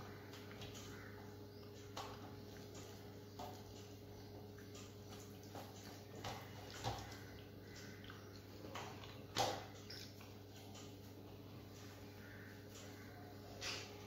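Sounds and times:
steady low hum: 0.0s - 14.0s
small clicks and smacks: 0.2s - 12.0s
wet chewing: 2.5s - 13.0s.

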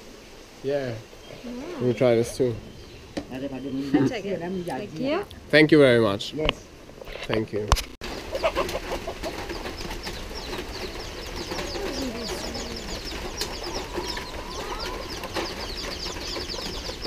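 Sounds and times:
hens and roosters calling: 1.1s - 5.2s, 8.0s - 17.0s
chicks peeping: 8.0s - 17.0s.

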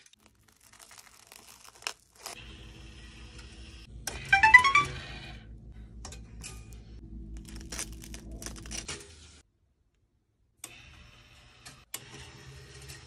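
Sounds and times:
low hum: 4.8s - 9.4s.

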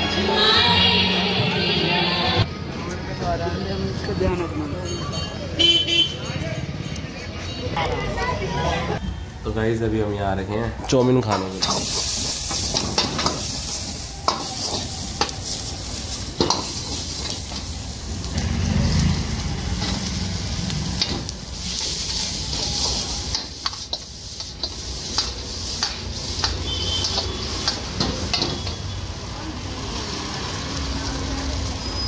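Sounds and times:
noodles sizzling in a wok: 11.4s - 32.0s
metal ladle scraping wok: 11.5s - 18.2s, 19.6s - 29.0s.

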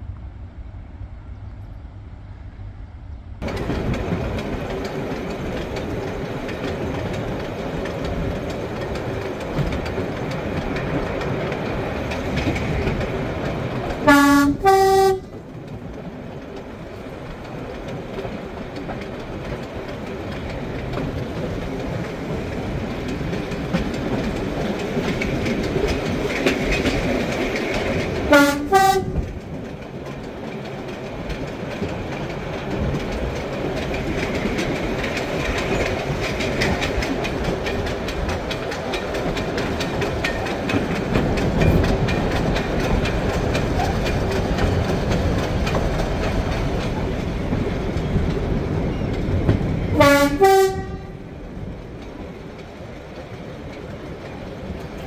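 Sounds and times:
diesel train running: 0.0s - 55.0s
wheels clicking over rail joints: 3.4s - 55.0s
two-tone train horn: 14.0s - 15.4s, 28.3s - 29.3s, 49.9s - 51.2s.

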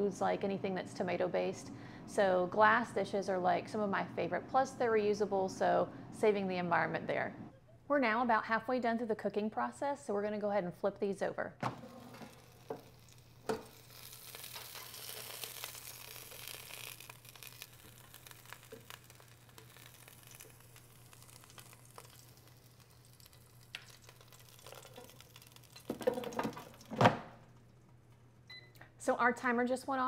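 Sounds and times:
chicken sizzling in air fryer: 11.7s - 26.9s.

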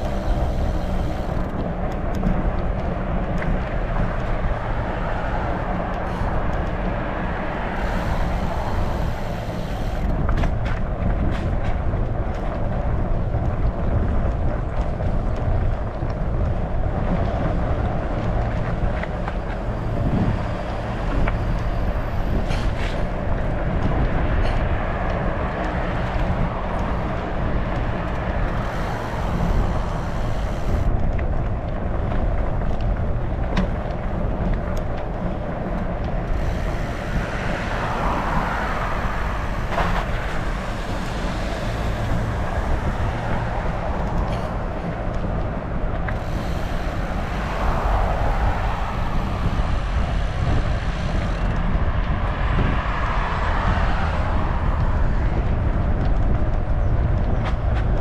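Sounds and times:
bike rumbling road noise: 0.0s - 58.0s
wind on the microphone: 0.0s - 58.0s.

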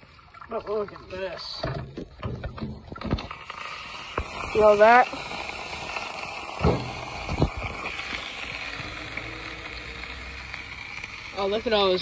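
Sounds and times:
steady hiss: 3.5s - 12.0s.

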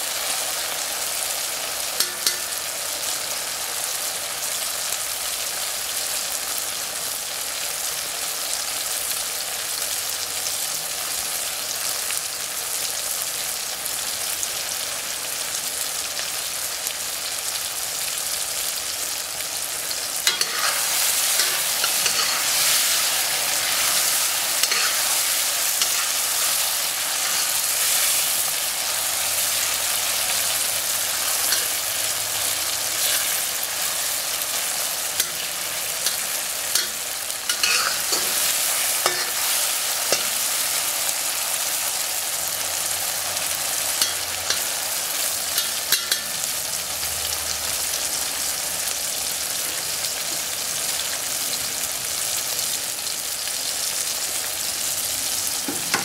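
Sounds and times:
food sizzling in oil: 0.0s - 56.0s
metal spatula scraping wok: 20.2s - 30.2s, 31.0s - 40.9s.

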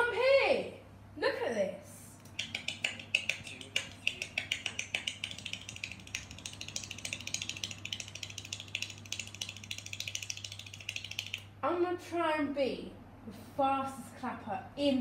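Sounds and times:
fast hand clapping: 2.3s - 11.5s.

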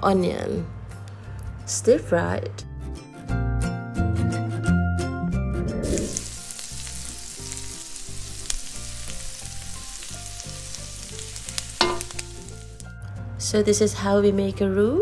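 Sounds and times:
onion sizzling in butter: 5.8s - 12.9s
spatula scraping and tapping pan: 11.8s - 12.4s.

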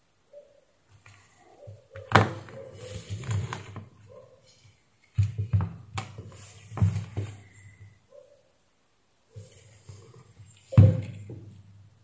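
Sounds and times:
rustling: 0.9s - 8.0s, 9.3s - 11.6s
dull thuds: 10.7s - 11.6s.

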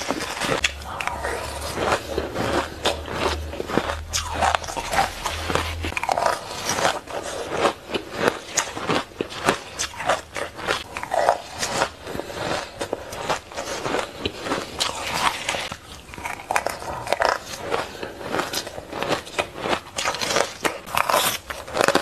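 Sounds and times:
crunching shaved ice: 0.0s - 22.0s.

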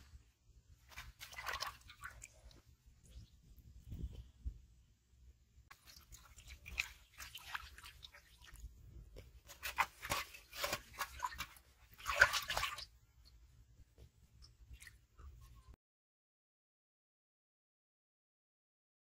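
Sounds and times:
fish splashing in metal pot: 0.9s - 2.4s, 5.7s - 8.6s, 9.5s - 12.9s.

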